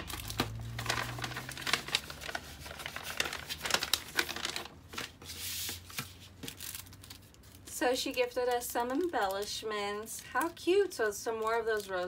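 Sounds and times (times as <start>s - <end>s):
paper bag crinkling: 0.0s - 9.4s
cellophane packets rustling: 0.0s - 12.0s.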